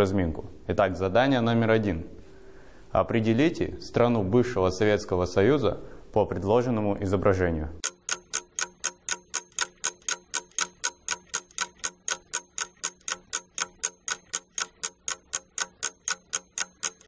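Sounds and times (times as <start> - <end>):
clock ticking: 7.8 - 17.0.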